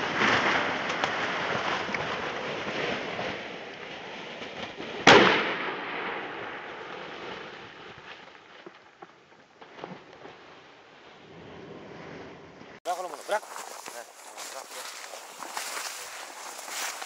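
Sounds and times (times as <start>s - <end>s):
shotgun shot: 5.0s - 6.7s
rustling on microphone: 12.9s - 17.0s.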